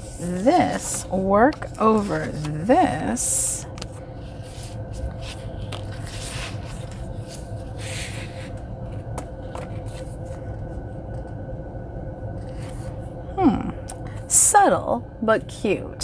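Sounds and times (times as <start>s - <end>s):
paper and plastic rustling: 0.0s - 10.6s
steady low hum: 0.0s - 16.0s.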